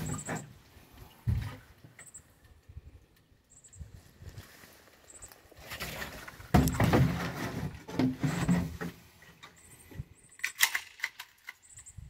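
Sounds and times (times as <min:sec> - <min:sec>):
metallic clicks of pistol slide: 0:10.4 - 0:11.8.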